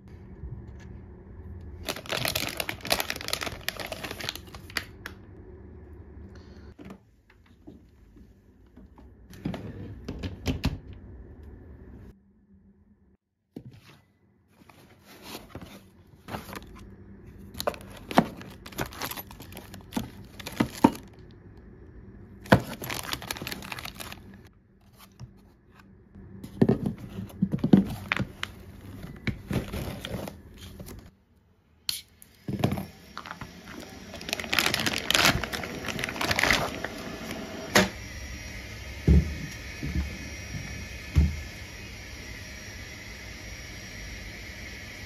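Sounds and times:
cardboard and foam rustling: 1.8s - 4.8s, 13.6s - 16.8s, 17.4s - 21.0s, 22.5s - 25.5s, 26.6s - 31.1s, 33.7s - 37.0s.

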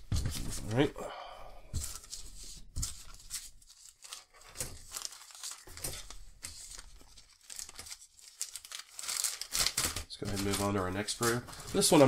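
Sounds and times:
plastic bag crinkling: 2.9s - 12.0s.

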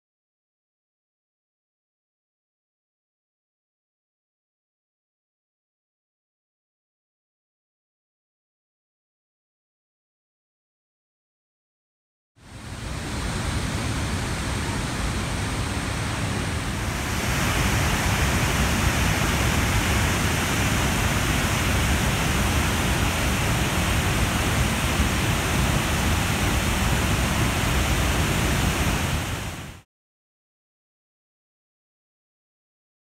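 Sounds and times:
waterfall rushing: 12.5s - 29.8s.

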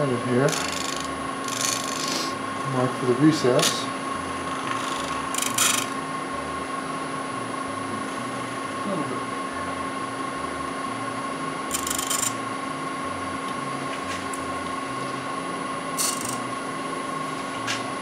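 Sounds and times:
wood lathe motor hum: 0.0s - 17.1s
tool rasping against spinning wood: 0.4s - 2.4s, 3.4s - 6.0s.

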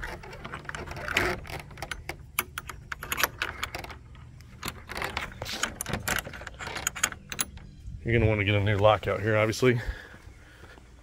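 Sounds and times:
metal latch clicking and rattling: 0.0s - 7.8s.

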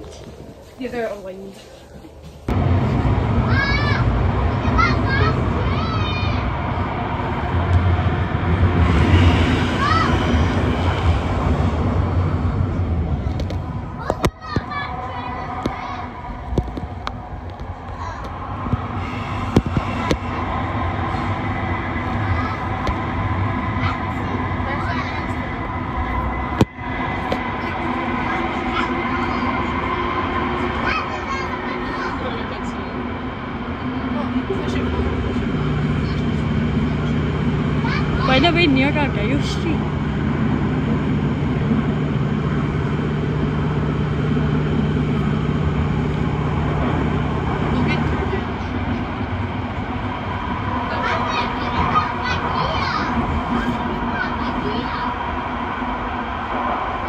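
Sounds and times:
train running rumble: 0.0s - 57.0s.

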